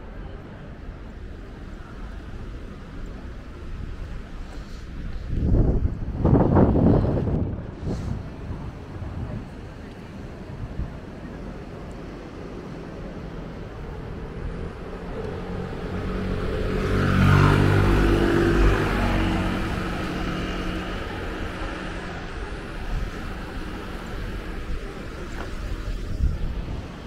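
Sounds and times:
background rush: 0.0s - 27.0s
vehicle engine passing by: 15.0s - 24.1s.

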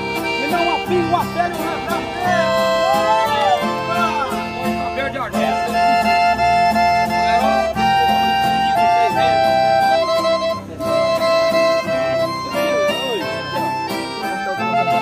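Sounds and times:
accordion melody: 0.0s - 15.0s
strummed acoustic guitars: 0.0s - 15.0s.

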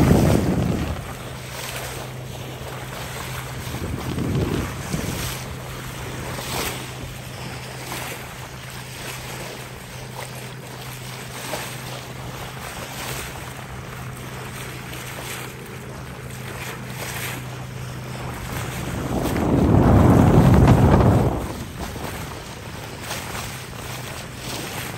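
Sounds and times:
wind on microphone: 0.0s - 9.6s, 15.4s - 24.9s
steady low hum: 0.0s - 24.9s
water rushing and splashing: 0.0s - 24.9s.

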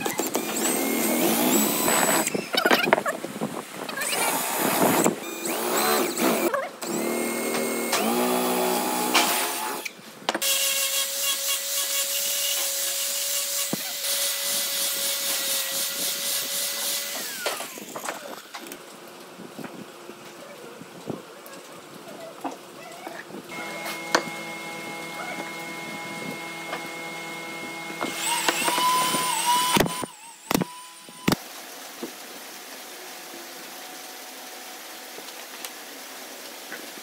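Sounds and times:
power tool motor running: 0.0s - 2.4s, 4.0s - 18.5s, 23.5s - 31.4s
electric drill boring into wood: 0.0s - 2.6s, 4.0s - 18.6s, 23.5s - 31.4s.

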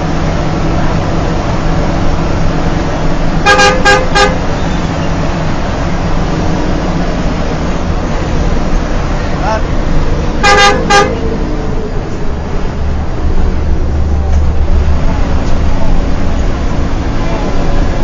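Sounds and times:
bus engine and road noise: 0.0s - 18.0s
bus horn toots: 3.4s - 5.2s, 10.4s - 11.4s.

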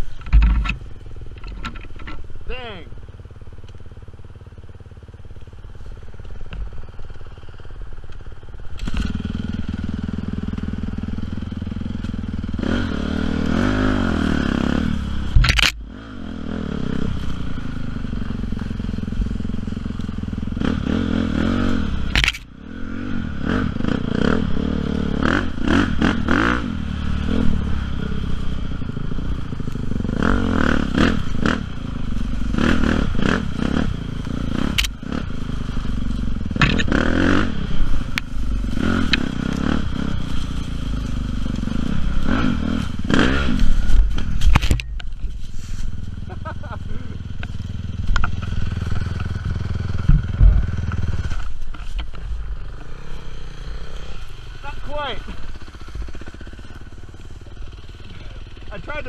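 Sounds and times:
dirt bike engine revving: 8.7s - 59.0s
sharp knocks: 50.0s - 50.9s.

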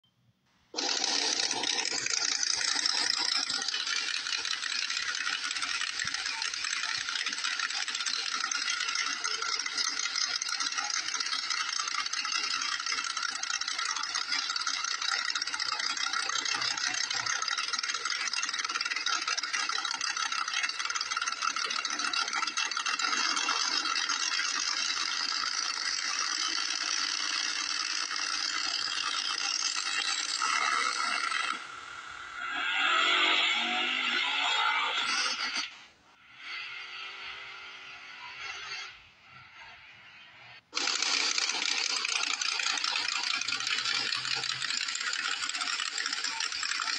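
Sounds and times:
drag car engines running: 0.8s - 46.9s.

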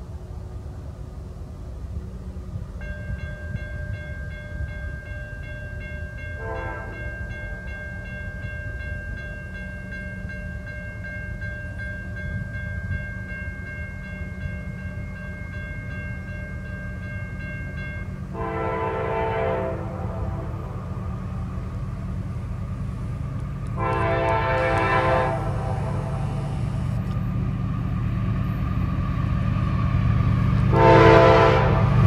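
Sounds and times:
low rumble of passing trains: 0.0s - 32.0s
lower-pitched horn blast: 6.4s - 7.2s, 18.3s - 21.9s, 23.7s - 27.1s, 30.6s - 32.0s
locomotive air horn chord: 6.4s - 7.3s, 18.3s - 21.7s, 23.7s - 27.0s, 30.6s - 32.0s.

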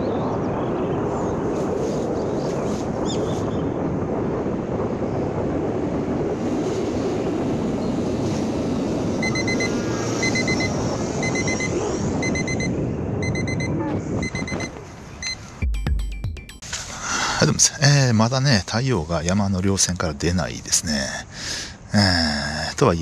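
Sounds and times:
steady rush of noise: 0.0s - 15.6s
short high electronic beeps: 9.2s - 15.4s.

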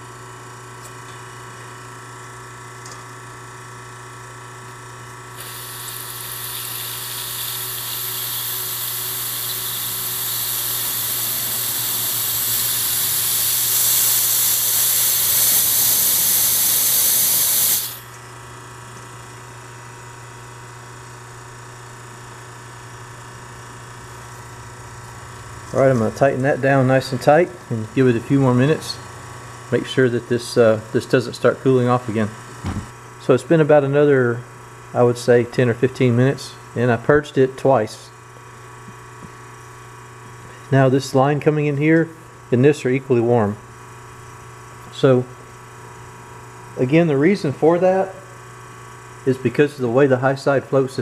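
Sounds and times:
steady low hum: 5.0s - 19.0s
gas hissing from fitting: 5.4s - 18.1s.

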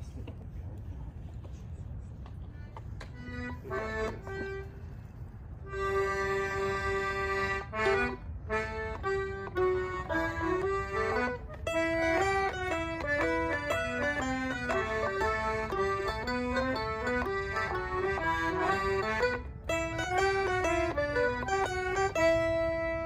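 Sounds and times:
accordion: 2.2s - 23.0s
mandolin plucked notes: 5.7s - 23.0s.

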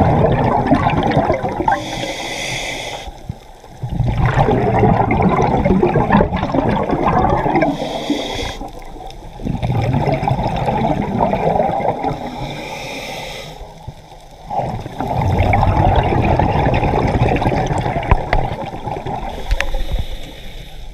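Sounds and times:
gurgling exhaled bubbles: 0.0s - 2.2s, 3.7s - 12.7s, 14.4s - 20.1s
diver breathing through regulator: 1.7s - 3.3s, 7.6s - 8.8s, 12.0s - 13.8s, 19.3s - 20.9s
regulator hiss: 1.8s - 3.4s, 7.7s - 8.7s, 12.2s - 13.8s, 19.3s - 20.9s.

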